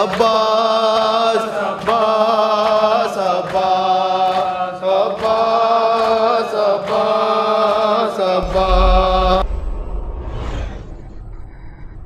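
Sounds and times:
men chanting a lament: 0.0s - 9.4s.

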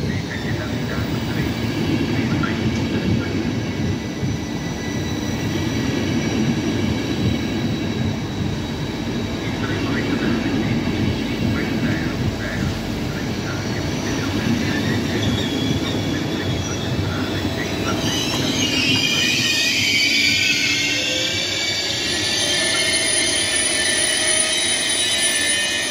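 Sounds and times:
train brakes squealing: 0.0s - 25.9s
train coaches rumbling past: 0.0s - 25.9s.

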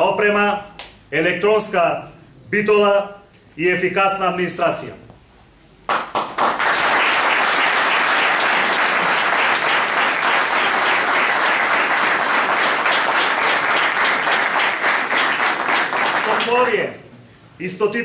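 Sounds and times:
group of people applauding: 5.9s - 16.8s.

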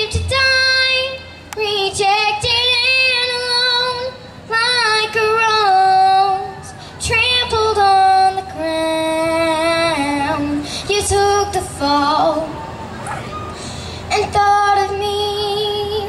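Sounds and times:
girl singing gospel song: 0.0s - 12.9s, 13.6s - 16.0s
short breaths: 6.7s - 7.0s, 10.6s - 10.9s, 13.1s - 14.1s.

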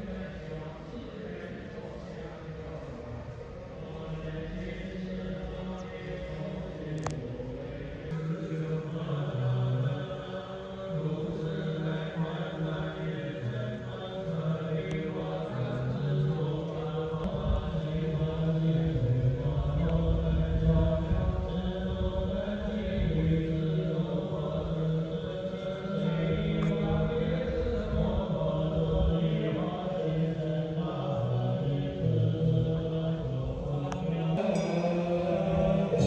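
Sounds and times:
low voices chanting: 0.0s - 36.0s
music accompaniment: 34.4s - 36.0s.

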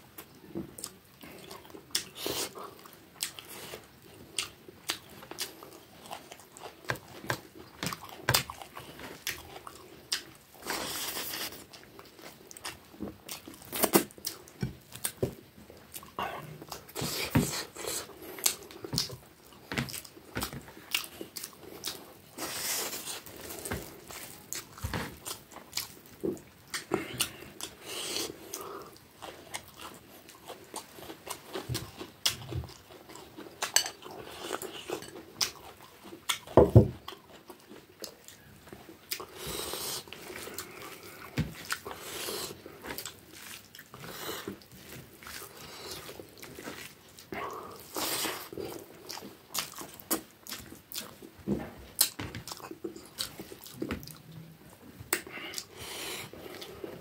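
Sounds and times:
person chewing food: 0.1s - 57.0s.

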